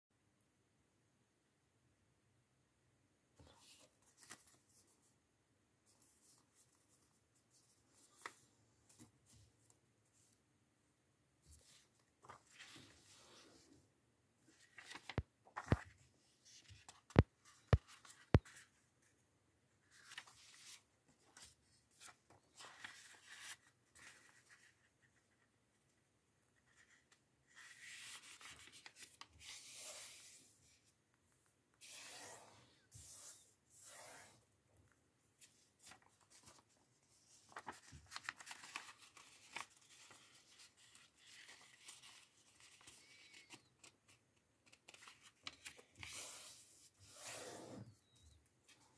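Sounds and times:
paper crinkling and rustling: 0:14.5 - 0:18.7, 0:35.7 - 0:46.1.

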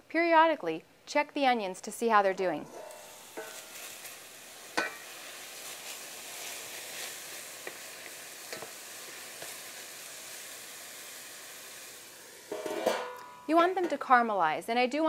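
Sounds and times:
metallic pan lid clink: 0:02.6 - 0:03.8, 0:04.8 - 0:05.0, 0:12.5 - 0:14.0
onions sizzling in oil: 0:02.7 - 0:13.5.

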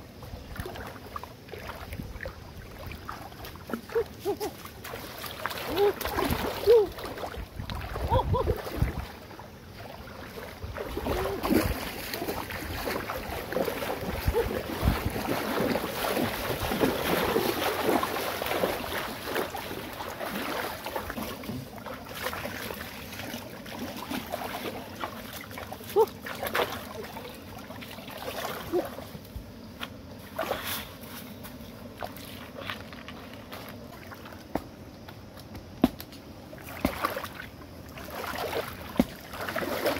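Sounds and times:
stream rushing: 0:00.0 - 0:29.3
water splashing from wading: 0:00.2 - 0:29.2, 0:30.2 - 0:31.0, 0:36.5 - 0:39.9.

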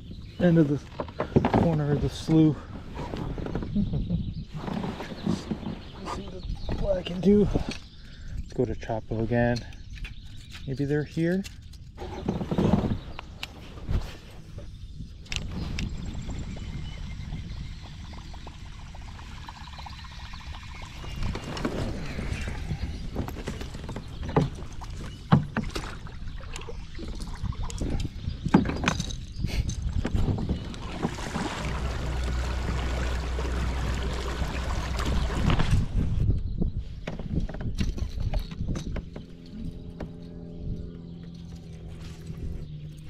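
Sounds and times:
paddle splashing water: 0:23.3 - 0:27.5, 0:30.3 - 0:35.9.

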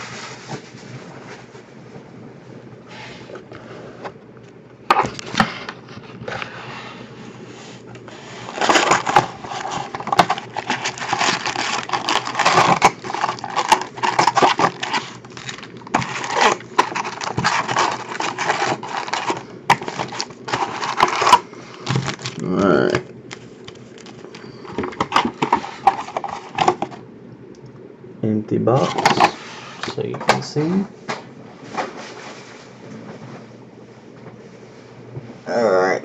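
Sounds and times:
foil packs crinkling and rustling: 0:08.2 - 0:27.0, 0:28.8 - 0:29.4.

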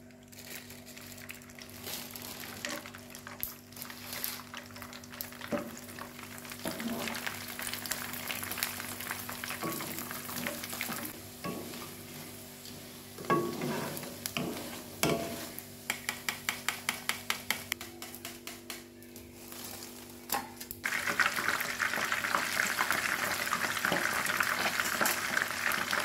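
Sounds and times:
food sizzling in hot oil: 0:01.2 - 0:16.2, 0:20.8 - 0:26.0
utensils clinking on cookware: 0:13.2 - 0:16.5.

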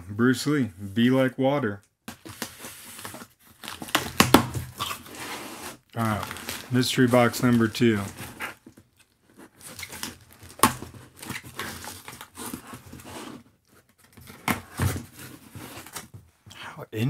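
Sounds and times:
cardboard flaps crinkling: 0:02.1 - 0:16.3
packing tape ripping: 0:02.3 - 0:06.7, 0:09.6 - 0:13.4
sharp cardboard cracks: 0:03.8 - 0:05.0, 0:09.8 - 0:12.6.

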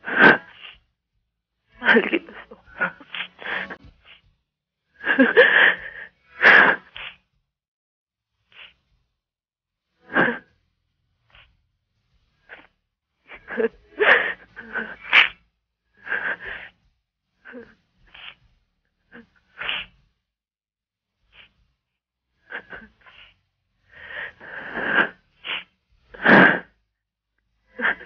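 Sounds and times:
woman sobbing over a telephone: 0:01.8 - 0:03.8, 0:13.4 - 0:15.1.

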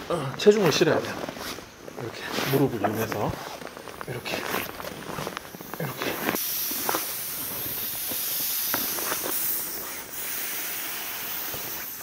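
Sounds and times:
air hissing from valve: 0:04.4 - 0:12.0.

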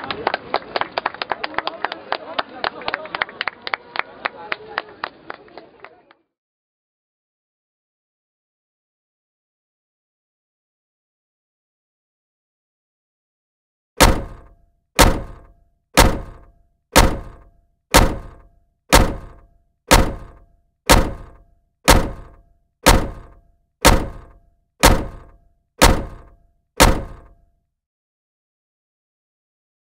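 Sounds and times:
heavy thunks: 0:14.0 - 0:27.4.

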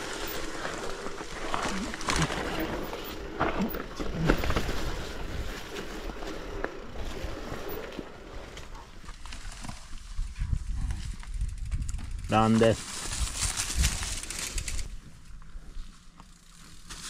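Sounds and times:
mountain bike knocks and rattles: 0:01.9 - 0:08.0
wind rumble on microphone: 0:02.5 - 0:15.1.

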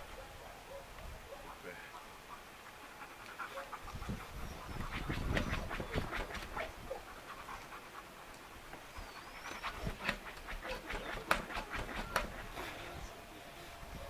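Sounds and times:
dog panting: 0:02.7 - 0:13.0.

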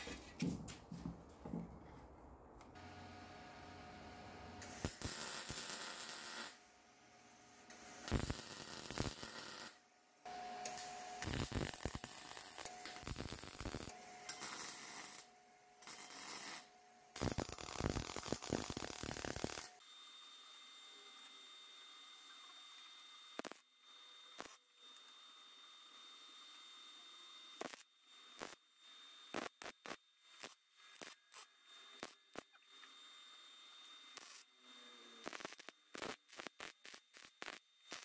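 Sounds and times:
arc welding crackling: 0:04.6 - 0:06.7, 0:07.7 - 0:09.8, 0:10.6 - 0:19.8, 0:23.4 - 0:23.6, 0:27.6 - 0:27.8, 0:28.4 - 0:28.6, 0:29.3 - 0:32.6, 0:34.1 - 0:34.5, 0:35.2 - 0:38.0.

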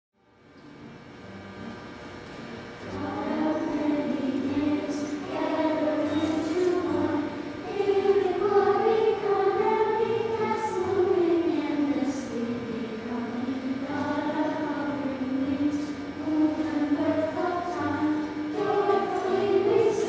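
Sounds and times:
children's choir singing: 0:02.8 - 0:20.0.

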